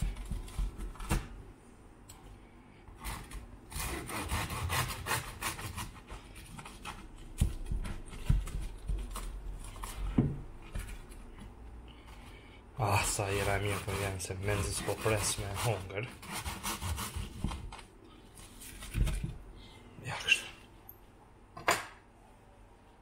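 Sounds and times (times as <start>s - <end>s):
knife sawing through toast: 3.0s - 6.1s, 13.0s - 17.3s.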